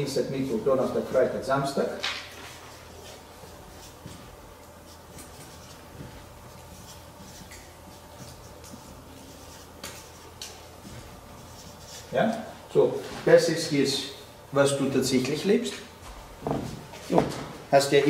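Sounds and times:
faint room hum: 0.0 - 18.0
marker drawing on paper: 2.9 - 12.5.

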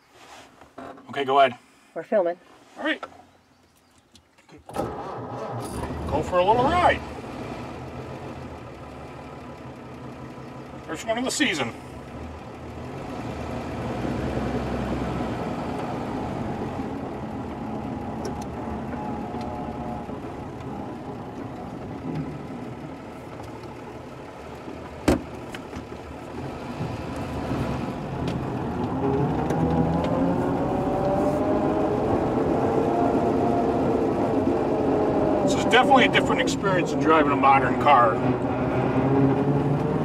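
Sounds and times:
car engine accelerating: 4.7 - 40.0.

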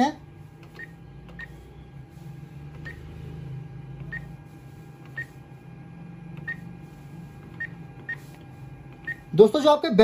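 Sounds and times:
low machine hum: 0.0 - 10.0
keypad beeps: 0.6 - 1.6, 2.8 - 3.1, 4.0 - 4.4, 5.0 - 5.4, 6.4 - 6.7, 7.4 - 8.4, 9.0 - 9.3.

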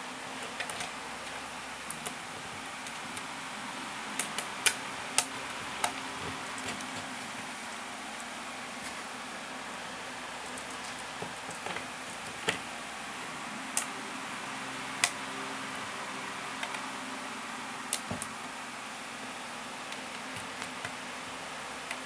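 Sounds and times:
steady background hiss: 0.0 - 22.0.

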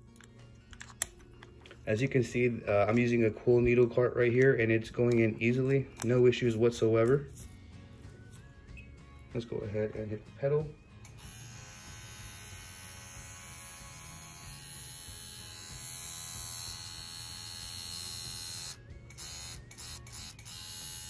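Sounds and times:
tattoo machine buzzing: 11.0 - 21.0.

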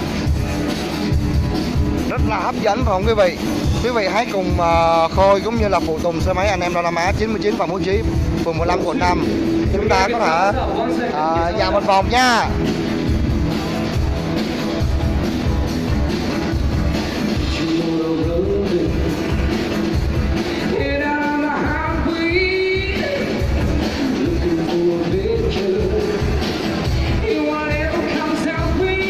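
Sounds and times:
live rock band playing: 0.0 - 29.0
person singing: 17.4 - 19.7, 20.4 - 29.0.

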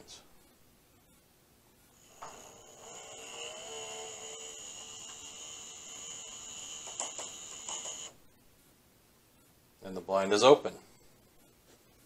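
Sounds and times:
motor whining: 2.0 - 8.2.

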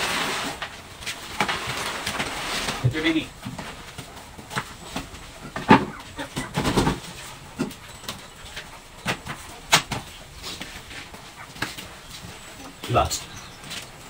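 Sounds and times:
cardboard scraping on concrete: 0.0 - 7.2.

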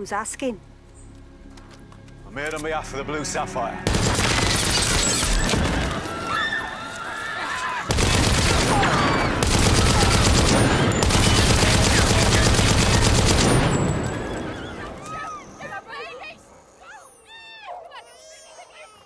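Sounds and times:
heavy gunfire: 3.9 - 6.1, 7.9 - 14.5
horses whinnying: 4.6 - 15.8.

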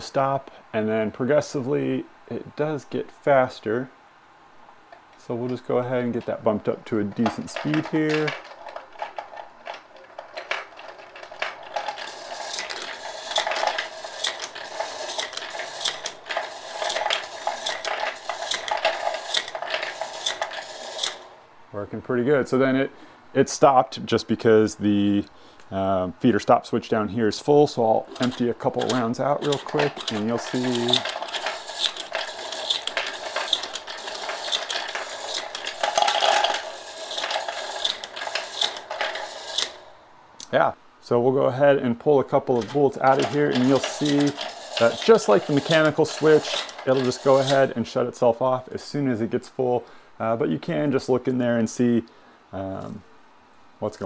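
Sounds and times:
bullets clattering in a feeder: 7.2 - 21.3, 28.1 - 39.9, 42.6 - 47.7.

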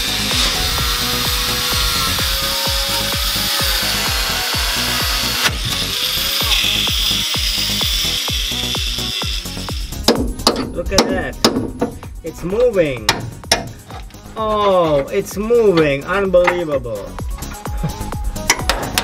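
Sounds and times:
angle grinder cutting steel: 0.0 - 12.0
background music with steady beat: 0.0 - 19.0.

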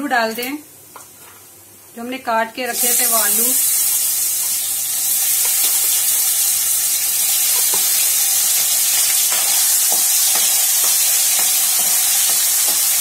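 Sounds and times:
potatoes sizzling in hot oil: 2.6 - 13.0.

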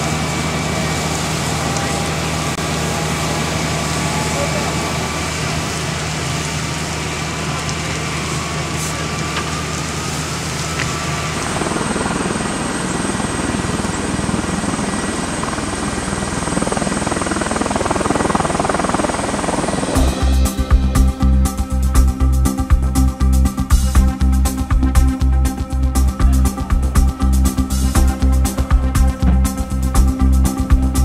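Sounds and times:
aircraft rushing noise: 0.0 - 22.8
high whine: 0.0 - 31.0.

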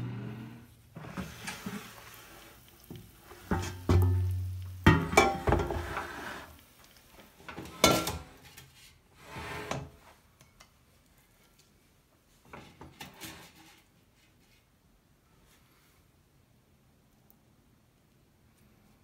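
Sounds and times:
scrape on ceramic plate: 0.0 - 2.5, 5.4 - 6.6, 9.2 - 9.9
air fryer basket clattering: 3.4 - 6.1.

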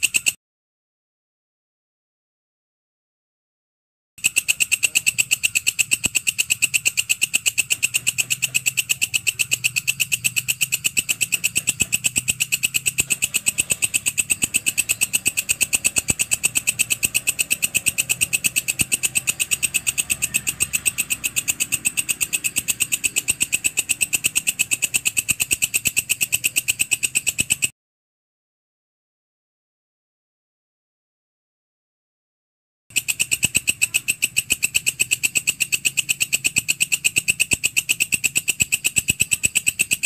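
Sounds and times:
grasshopper rasping call: 4.2 - 27.7, 32.9 - 40.0.

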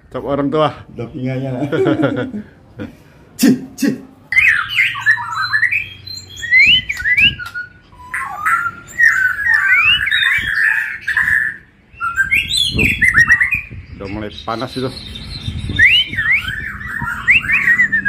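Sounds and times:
songbird singing: 4.2 - 18.0.

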